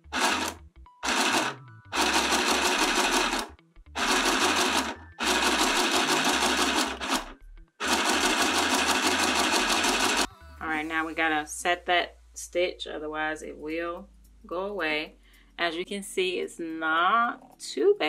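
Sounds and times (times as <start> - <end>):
mini sewing machine stitching: 0.0 - 10.3.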